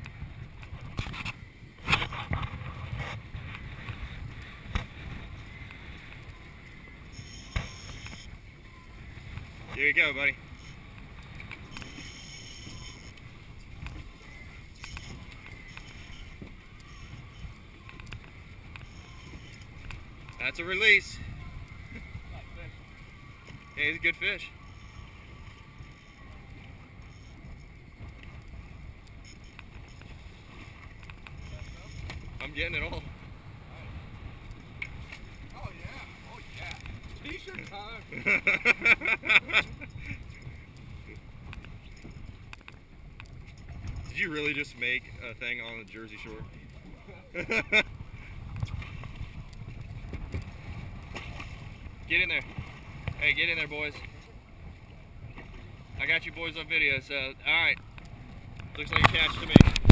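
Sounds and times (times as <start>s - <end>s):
wind buffeting microphone: 0.0s - 23.8s, 39.4s - 59.9s
water washing along boat: 0.0s - 59.9s
faint clicks: 10.9s - 20.4s, 40.4s - 44.1s, 57.8s - 59.9s.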